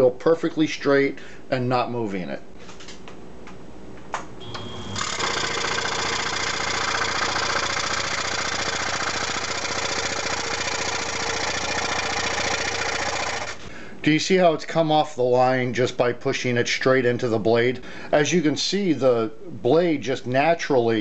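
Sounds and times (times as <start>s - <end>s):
scroll saw cutting wood: 4.5s - 13.6s.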